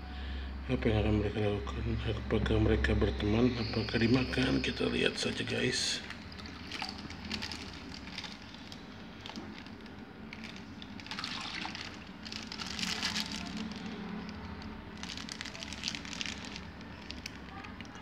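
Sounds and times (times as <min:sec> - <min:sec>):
water pouring into tub: 0:05.2 - 0:17.5
plastic bag crinkling: 0:06.0 - 0:18.0.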